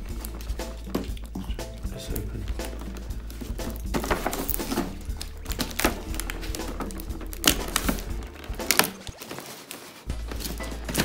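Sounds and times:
cardboard box rustling: 2.9s - 11.0s.

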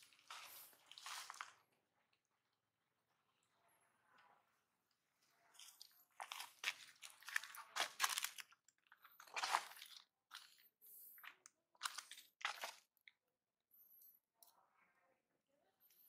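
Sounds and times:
dry crunches: 5.6s - 8.6s.

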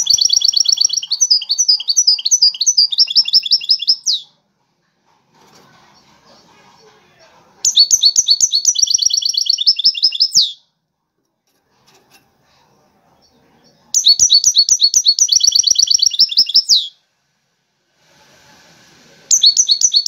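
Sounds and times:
goldfinch singing trills: 0.0s - 4.3s.

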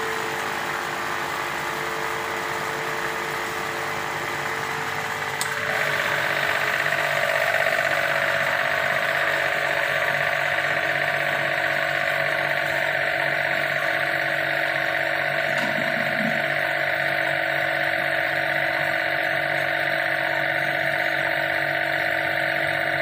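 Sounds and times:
motor humming: 0.0s - 23.0s
click: 5.4s - 5.6s.

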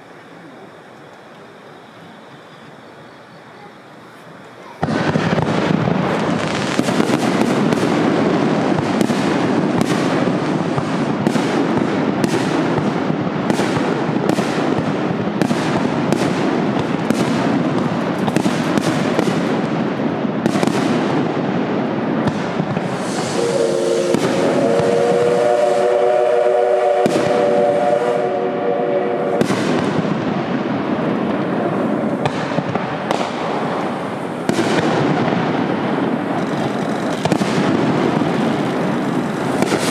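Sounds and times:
crackle of pops and bangs: 4.8s - 23.4s, 26.8s - 27.9s, 29.4s - 38.6s, 39.5s - 39.9s
steam locomotive whistle: 22.8s - 29.8s.

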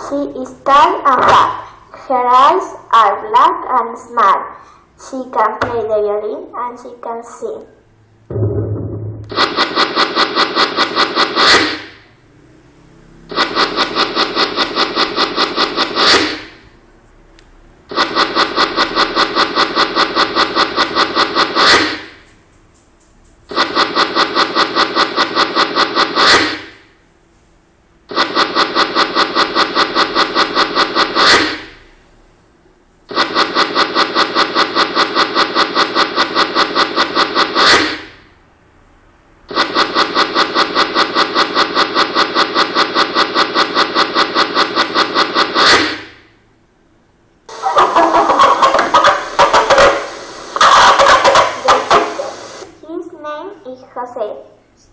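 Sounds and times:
typewriter clacking sound effect: 9.3s - 12.0s.

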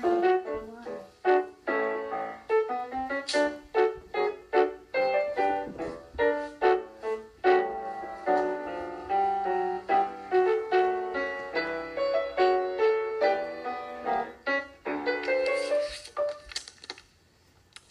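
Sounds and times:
piano dance piece: 0.0s - 16.6s.

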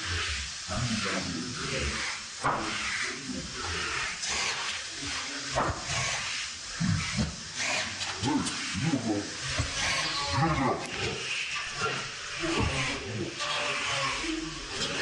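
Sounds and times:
cordless drill driving screws: 5.8s - 6.4s, 7.0s - 8.8s, 9.5s - 14.1s.

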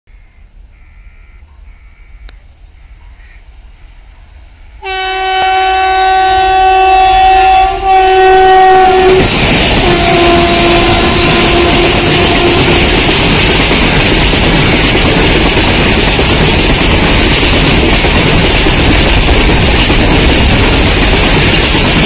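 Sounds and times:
train wheels rushing on rails: 1.0s - 22.0s
locomotive horn blast: 4.8s - 13.2s.

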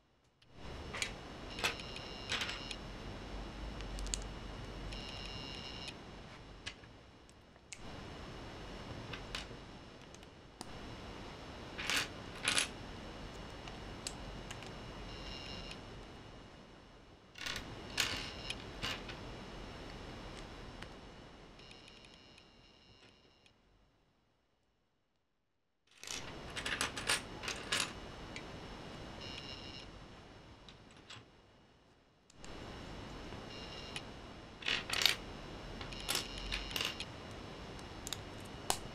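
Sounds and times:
plastic bricks clicking and rattling: 34.6s - 35.2s.

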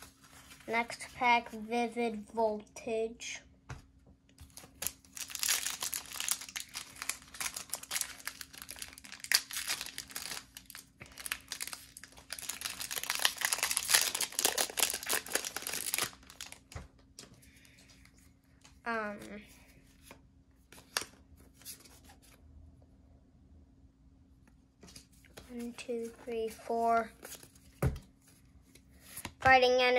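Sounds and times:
foil wrapper crinkling: 4.4s - 16.9s.

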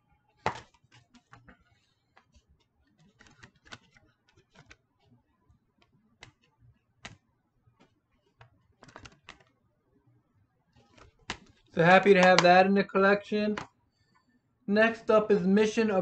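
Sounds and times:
plastic case clicks and taps: 12.2s - 12.5s.

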